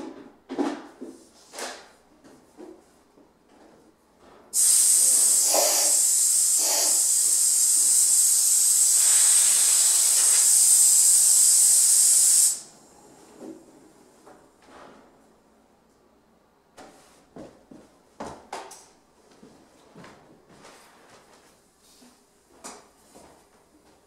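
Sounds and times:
compressed air hissing: 4.6 - 12.7.

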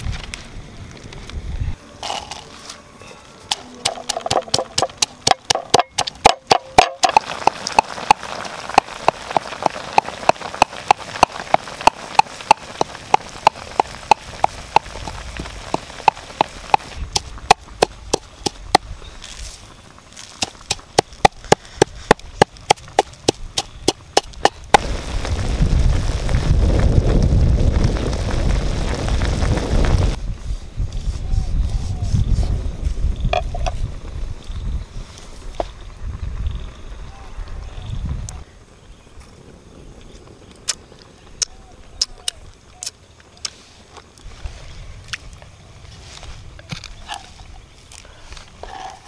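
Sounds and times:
pestle pounding in wooden mortar: 3.8 - 14.9, 20.4 - 24.8.

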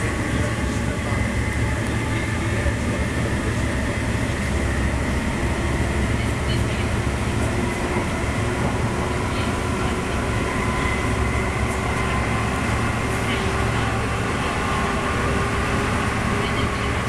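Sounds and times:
train rumble inside carriage: 0.0 - 17.0.

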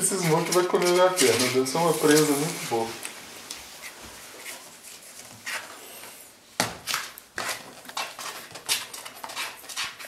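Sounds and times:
puppies scuffling and snuffling: 0.0 - 6.2.

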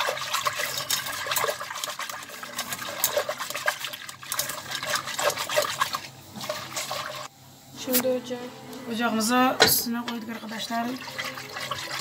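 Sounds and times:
whisk stirring liquid in metal pot: 0.0 - 7.3, 10.4 - 12.0.

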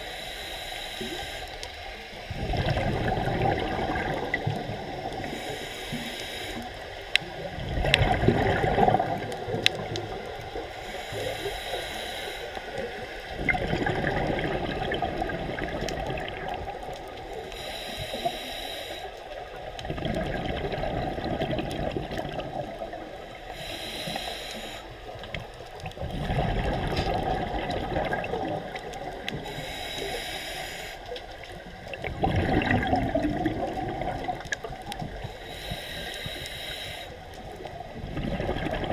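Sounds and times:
regulator inhale hiss: 0.0 - 2.3, 5.1 - 7.4, 10.5 - 13.3, 17.2 - 19.5, 23.2 - 25.4, 29.2 - 31.4, 35.0 - 37.5
gurgling exhaled bubbles: 2.3 - 5.7, 7.2 - 10.8, 12.8 - 17.4, 19.4 - 23.6, 25.2 - 29.6, 31.5 - 36.4, 37.5 - 38.9.

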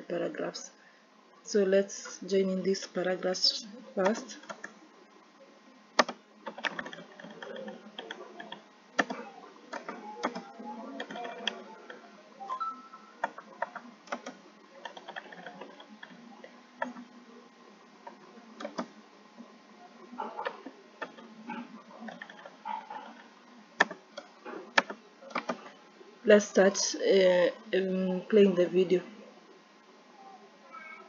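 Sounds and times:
keyboard keystroke clicks: 6.0 - 11.6, 18.6 - 18.9.

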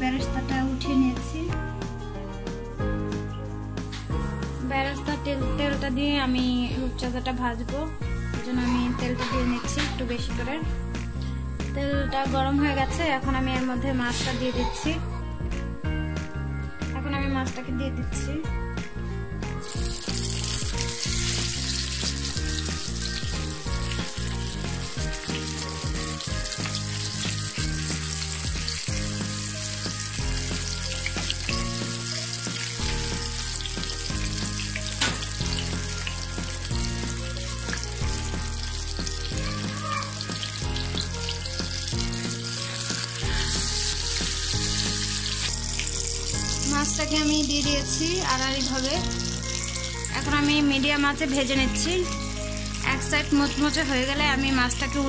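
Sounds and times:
background music: 0.0 - 55.0
fish sizzling in hot oil: 19.6 - 55.0.

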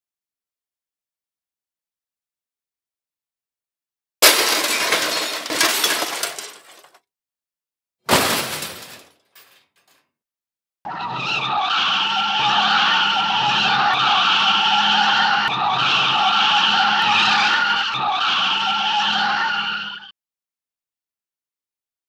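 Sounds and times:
crash with breaking glass: 4.2 - 7.0, 8.1 - 9.5
car tyres screeching: 10.9 - 20.1.

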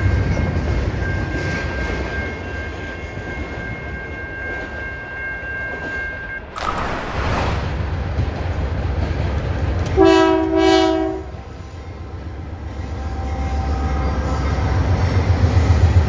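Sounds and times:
freight cars rumbling on rails: 6.4 - 13.0
brief whoosh: 6.5 - 8.4.

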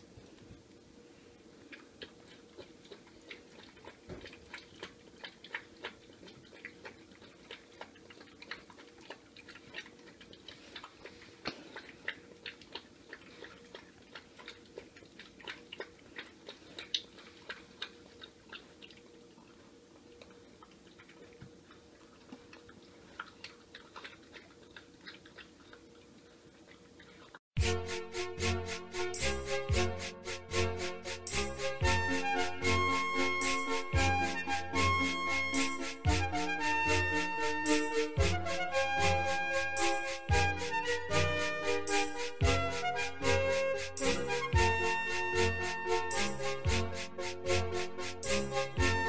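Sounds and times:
faint steady hum: 0.0 - 27.4
puppy crunching dry kibble: 1.6 - 27.4.

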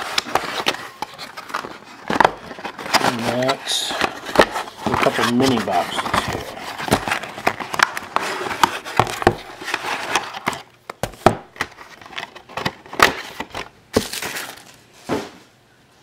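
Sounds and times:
plastic wrap crinkling: 0.0 - 14.9
boxes knocking on table: 8.6 - 9.5, 11.0 - 11.7.

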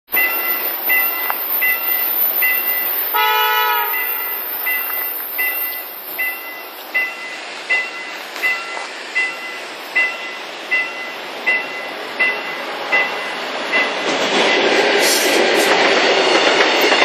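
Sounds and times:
high electronic warning beeps: 0.1 - 14.0
steady hiss: 0.2 - 14.0
train horn blast: 3.1 - 4.4.

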